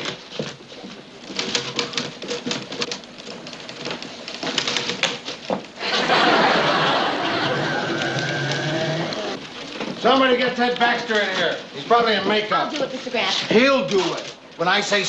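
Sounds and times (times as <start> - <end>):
typewriters clacking: 0.0 - 15.0
electric pencil sharpener whirring: 7.2 - 9.4.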